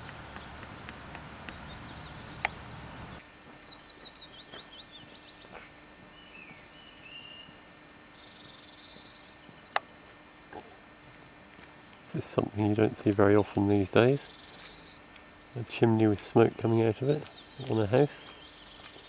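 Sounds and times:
songbirds singing: 0.0 - 10.4, 12.2 - 19.0
sharp clicks: 2.4 - 2.6.

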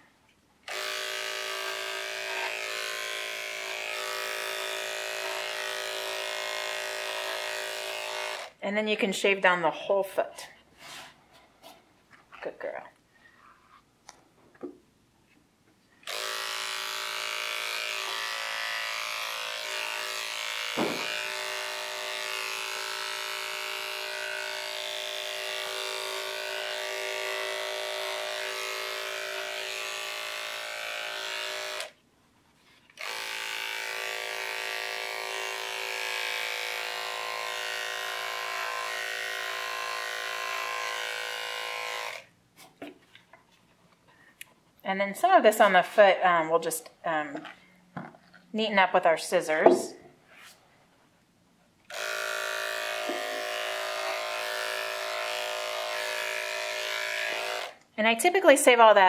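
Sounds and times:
electric dog clipper buzzing: 0.7 - 8.6, 16.0 - 32.0, 33.0 - 42.3, 51.9 - 59.0.

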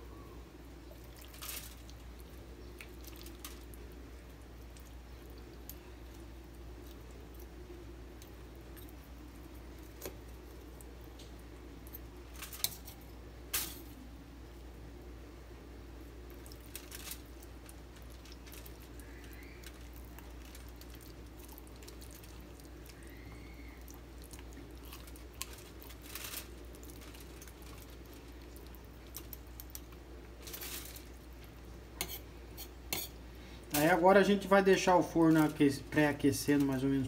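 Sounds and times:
steady low hum: 0.0 - 37.0
crinkling aluminium foil: 1.1 - 2.0, 2.8 - 3.8, 12.3 - 14.0, 16.3 - 31.3, 33.7 - 37.0.

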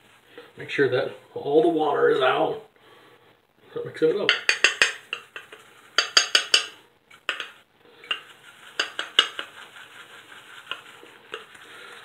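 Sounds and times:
brush clinking against metal bowl: 4.3 - 9.7, 10.4 - 11.6
shaving brush whisking lather: 7.3 - 12.0.

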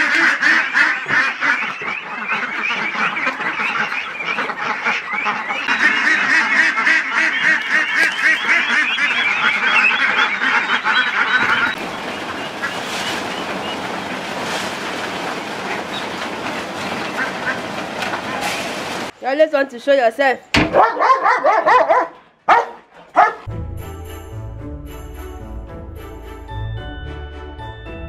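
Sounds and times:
flock of ducks quacking: 0.0 - 14.4, 15.2 - 18.4.

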